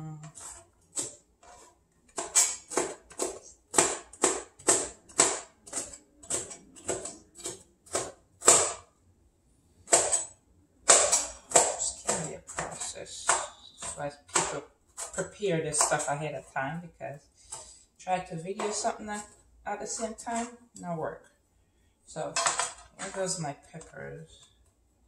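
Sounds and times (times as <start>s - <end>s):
knife chopping on cutting board: 0.3s - 8.9s, 9.9s - 16.0s.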